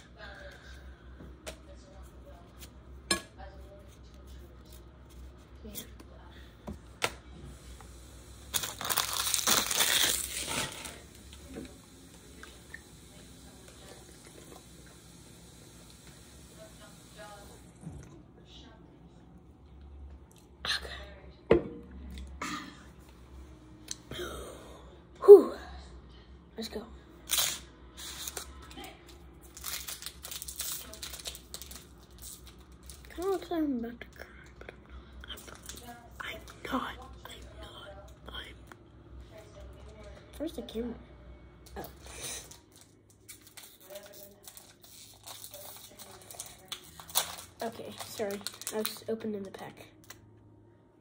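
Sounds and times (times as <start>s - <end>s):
foil wrapper crinkling and tearing: 8.5s - 11.1s, 27.3s - 33.2s, 42.1s - 49.1s.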